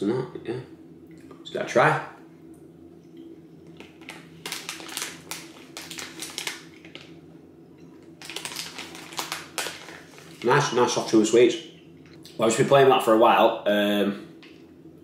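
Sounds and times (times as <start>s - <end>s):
plastic packet crinkling: 3.8s - 7.2s, 8.1s - 11.2s.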